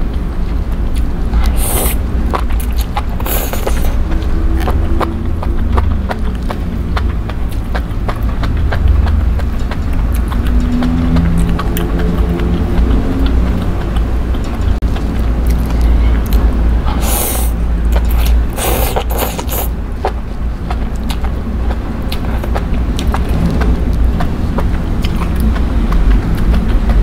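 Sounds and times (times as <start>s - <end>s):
low rumble: 0.0s - 27.0s
wet chewing: 0.1s - 27.0s
loud slurping: 1.4s - 4.8s, 16.8s - 19.8s.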